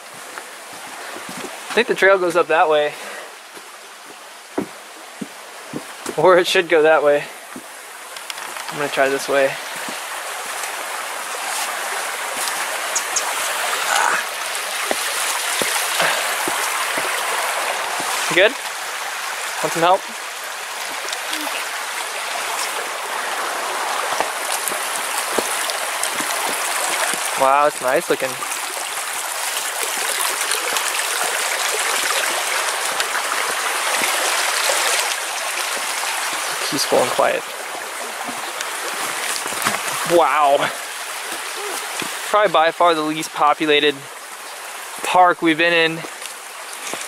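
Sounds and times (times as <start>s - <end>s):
water rushing over gravel: 0.0s - 47.0s
soft knocks: 4.6s - 5.9s.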